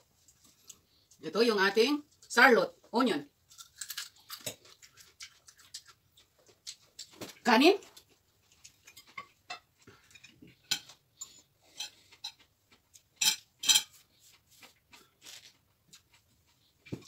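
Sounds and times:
cutlery clinking on dishes: 8.8s - 12.5s, 13.2s - 14.0s.

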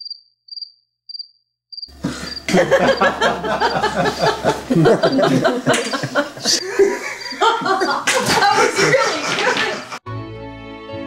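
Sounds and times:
cricket chirping: 0.0s - 3.8s
voices: 1.9s - 10.0s.

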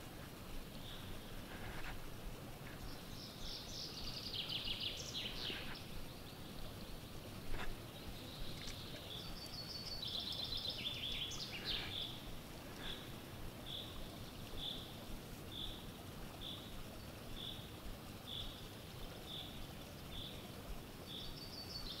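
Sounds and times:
low hiss of woods: 0.0s - 22.0s
songbirds trilling: 2.6s - 18.6s.

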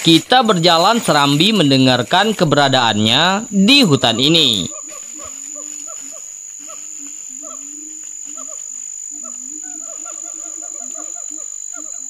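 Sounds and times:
high-pitched insect drone: 0.0s - 12.0s
low repeated animal calls: 2.6s - 12.0s.

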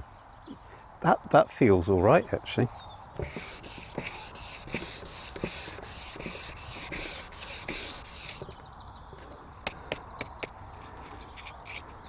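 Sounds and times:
sanding block rubbing on wood: 3.2s - 8.5s.

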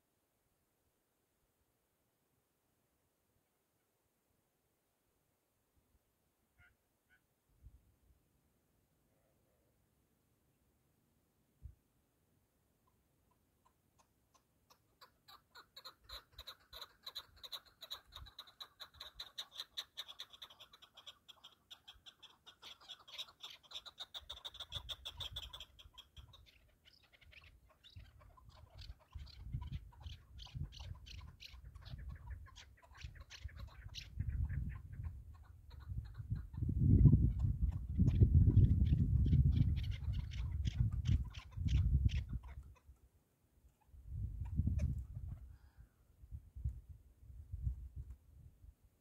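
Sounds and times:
partridge calling rapid notes: 12.8s - 42.9s.

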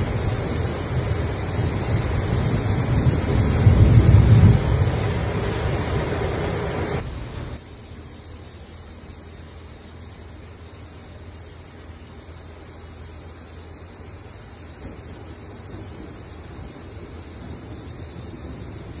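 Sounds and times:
wind rumbling on microphone: 0.0s - 7.6s, 14.9s - 19.0s.

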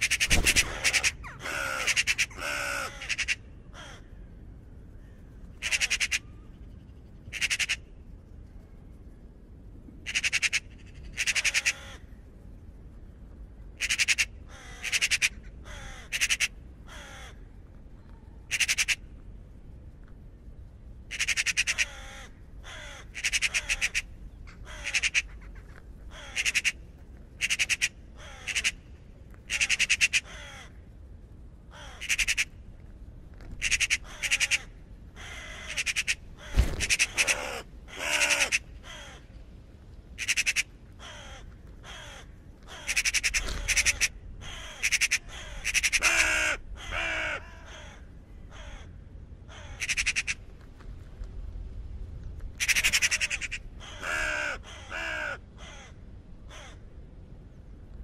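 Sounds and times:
raven croaking: 0.0s - 4.3s, 5.6s - 6.5s, 10.0s - 12.2s, 13.8s - 17.6s, 18.3s - 19.2s, 21.0s - 31.0s, 31.7s - 32.8s, 33.4s - 39.4s, 40.1s - 50.5s, 52.6s - 56.9s.

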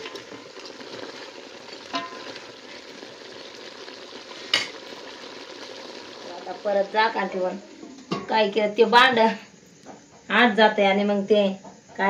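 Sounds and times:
meat sizzling in a pot: 0.0s - 9.2s.

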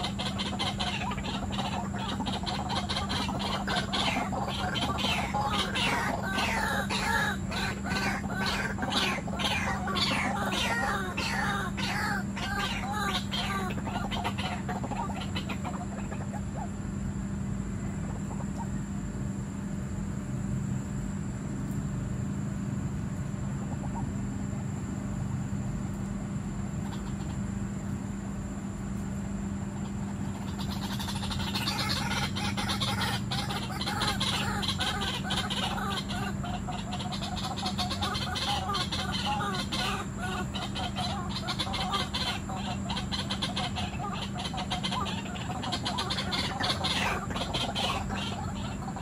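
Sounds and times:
waterhens chattering: 0.0s - 16.8s, 17.8s - 18.8s, 29.8s - 49.0s
steady low hum: 0.0s - 49.0s.

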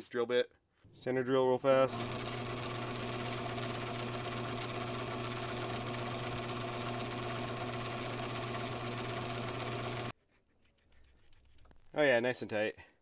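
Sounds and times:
metal lathe humming: 1.9s - 10.1s.

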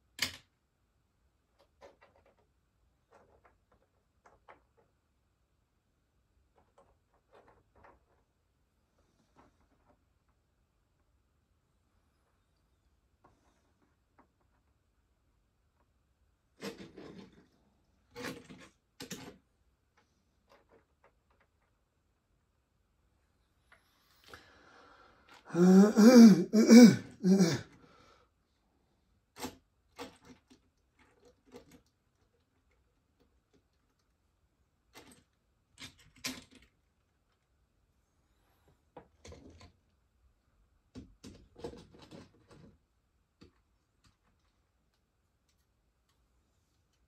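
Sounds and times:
person's wordless vocal sound: 25.5s - 27.7s.

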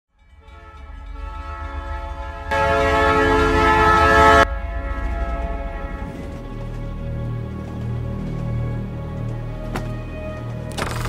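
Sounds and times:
steam locomotive rumble: 0.2s - 10.7s
steam locomotive whistle: 0.4s - 7.1s.

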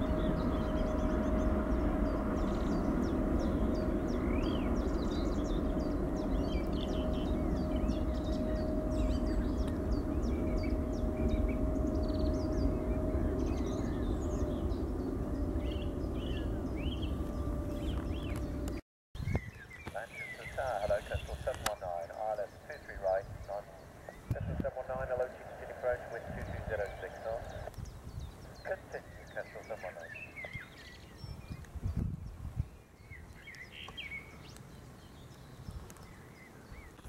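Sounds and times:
jet airliner engine roar: 0.0s - 18.8s, 20.0s - 30.6s
steady hum: 0.0s - 18.8s, 20.0s - 30.0s
small birds chirping: 0.0s - 37.0s.

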